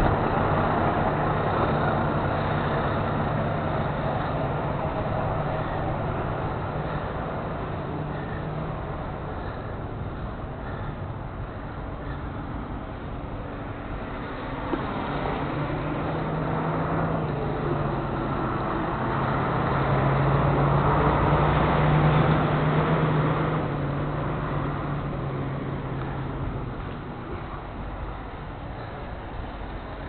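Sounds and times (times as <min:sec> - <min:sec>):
vehicle engine passing by: 0:13.7 - 0:30.0.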